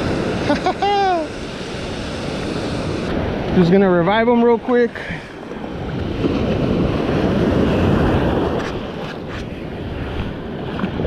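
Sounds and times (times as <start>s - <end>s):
surf washing in: 0.0s - 11.0s
wind buffeting microphone: 0.0s - 11.0s.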